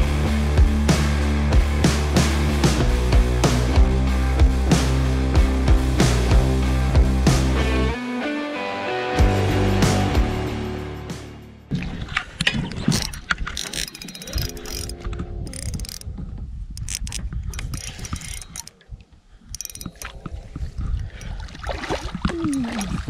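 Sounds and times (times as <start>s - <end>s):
fishing reel gears clicking: 13.0s - 16.1s, 16.8s - 18.8s, 19.5s - 20.1s
fish splashing: 21.3s - 23.0s.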